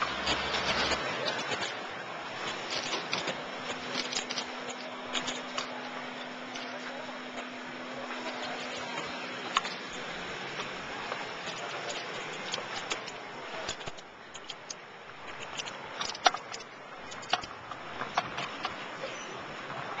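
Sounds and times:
sharp clicks and rattles: 0:08.2 - 0:18.8.

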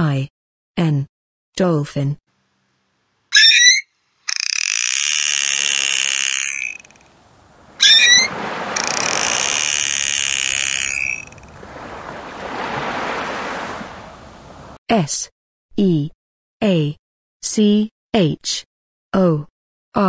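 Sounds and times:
dolphin wavering whistle: 0:03.3 - 0:07.1, 0:07.7 - 0:12.5
dolphin buzzing squeals: 0:03.3 - 0:14.0.

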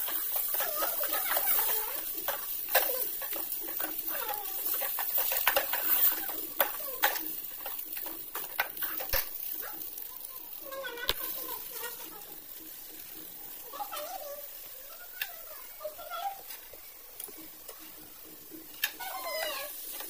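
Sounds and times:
spoon clinking and scraping pan: 0:00.0 - 0:09.5
frying sizzle: 0:00.0 - 0:20.0.

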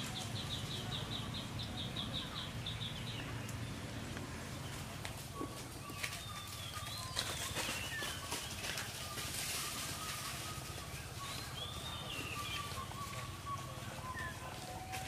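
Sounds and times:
animal chirps: 0:09.1 - 0:15.0.

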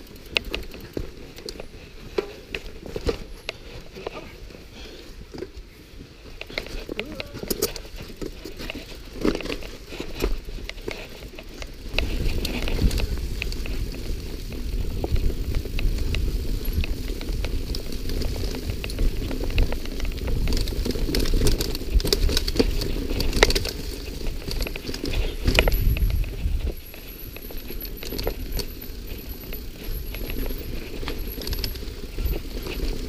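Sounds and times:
bike rattling over bumps: 0:00.0 - 0:33.0
tyres on dirt: 0:00.0 - 0:33.0
wind buffeting microphone: 0:11.9 - 0:26.9.

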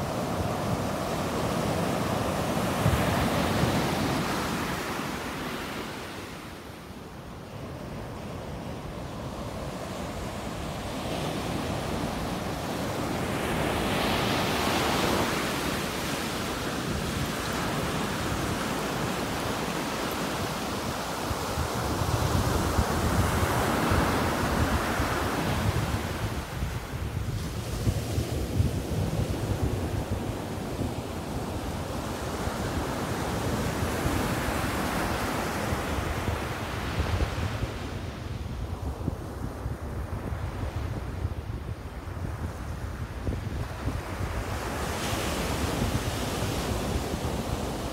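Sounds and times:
ocean surf breaking: 0:00.0 - 0:06.7
ocean waves breaking on beach: 0:00.0 - 0:47.9
wind buffeting microphone: 0:00.0 - 0:47.9.

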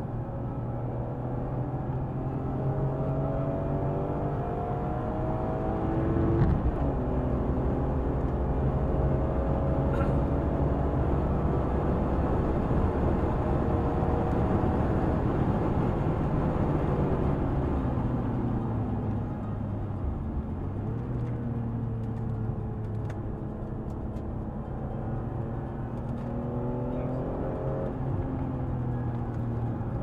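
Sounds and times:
car engine accelerating: 0:00.4 - 0:30.0.

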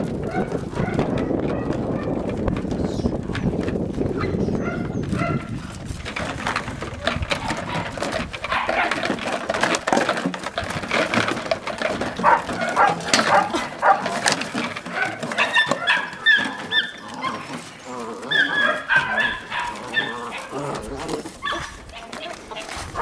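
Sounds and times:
knocks and rattles: 0:00.0 - 0:23.0
puppy yips and whimpers: 0:15.4 - 0:17.4.

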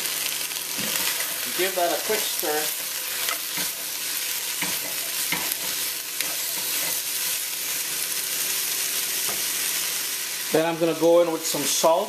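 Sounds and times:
vegetables sizzling in hot oil: 0:00.0 - 0:12.0
spatula scraping pot: 0:02.8 - 0:07.5.

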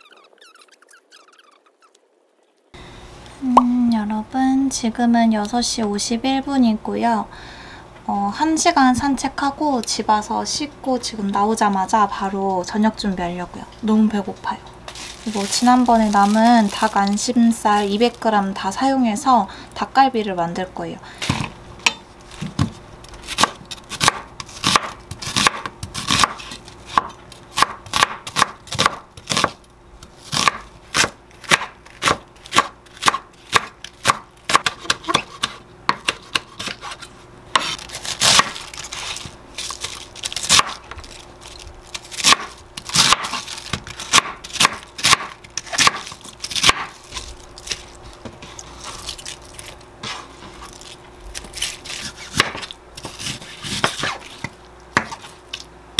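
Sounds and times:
faint steady hum: 0:00.0 - 0:55.9
knife chopping on wooden board: 0:23.4 - 0:29.6, 0:30.3 - 0:37.0, 0:37.6 - 0:38.6, 0:42.2 - 0:46.0, 0:52.0 - 0:55.3.

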